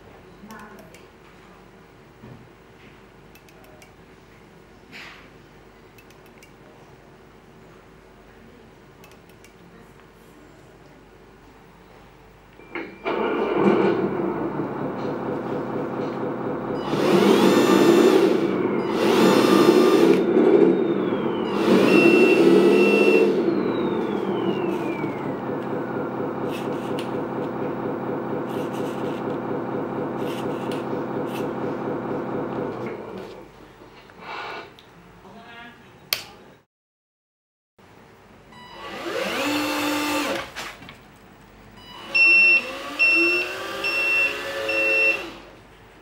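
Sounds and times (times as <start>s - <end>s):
simulated truck engine revving: 13.2s - 33.2s.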